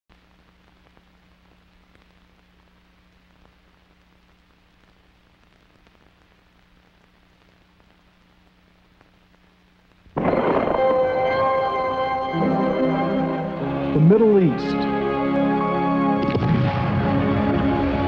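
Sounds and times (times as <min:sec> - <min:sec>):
tape hiss: 0:00.1 - 0:18.0
low hum: 0:10.0 - 0:15.4.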